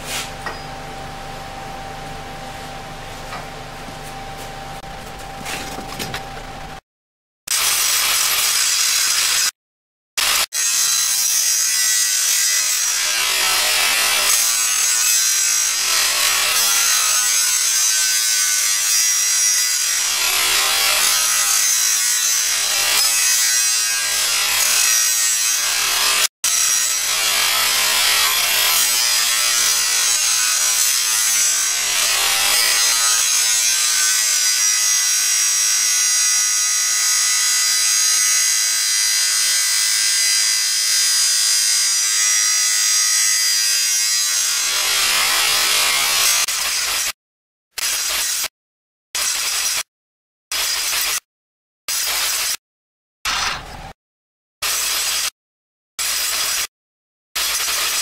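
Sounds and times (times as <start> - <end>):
angle grinder grinding steel: 10.2 - 47.2.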